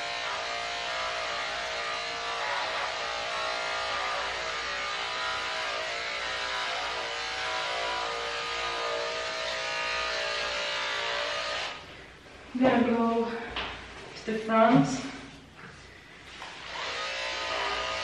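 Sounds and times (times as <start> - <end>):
electric clippers buzzing: 0.0 - 11.8, 16.3 - 18.0.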